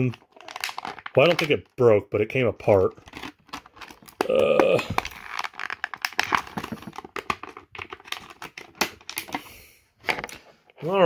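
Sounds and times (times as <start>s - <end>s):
plastic packaging crinkling: 0.0s - 1.7s, 2.6s - 9.4s.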